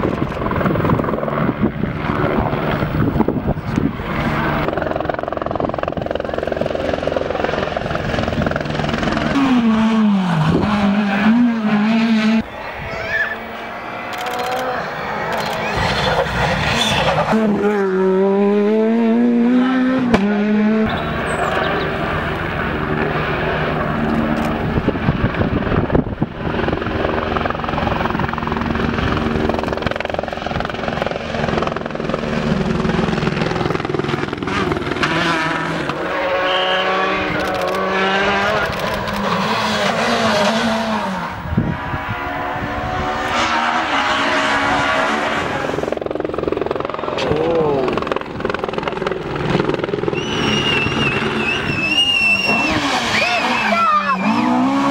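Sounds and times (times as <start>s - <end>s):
rally car engines revving: 5.5s - 26.3s, 29.9s - 54.9s.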